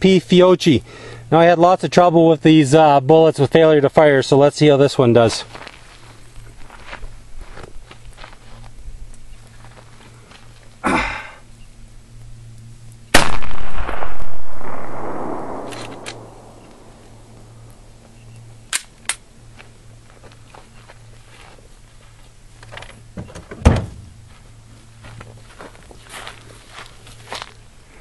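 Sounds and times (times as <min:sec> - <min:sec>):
handgun shot with echo: 0:13.2 - 0:17.1.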